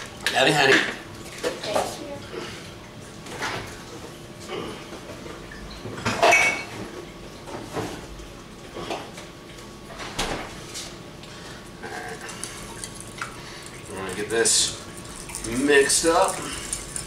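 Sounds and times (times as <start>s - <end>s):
dishes and utensils clinking: 6.0s - 6.8s.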